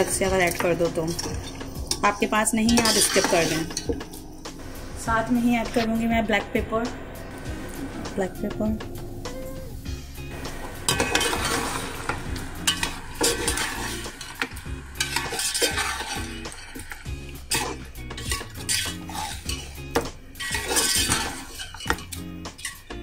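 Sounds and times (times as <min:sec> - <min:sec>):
sizzling in pot: 0:00.0 - 0:06.0, 0:07.4 - 0:23.0
spoon scraping metal pot: 0:00.4 - 0:04.2, 0:10.8 - 0:22.9.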